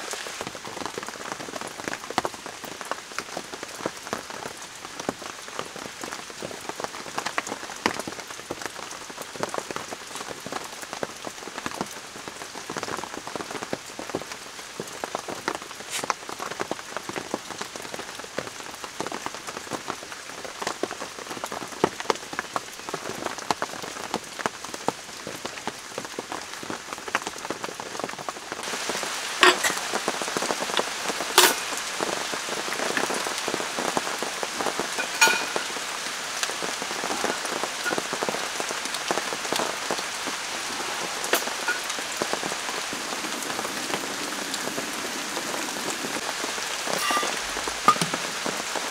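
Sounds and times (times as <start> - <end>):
heavy rain on a tent: 0.0 - 48.9.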